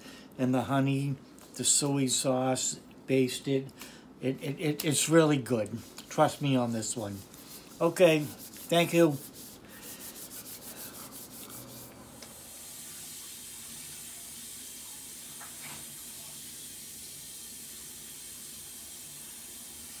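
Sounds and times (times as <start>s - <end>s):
steady background hiss: 0.0s - 20.0s.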